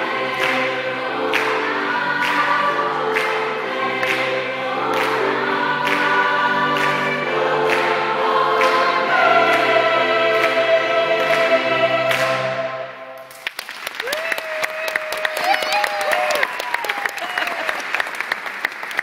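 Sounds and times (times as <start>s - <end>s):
gospel choir singing: 0.0s - 13.2s.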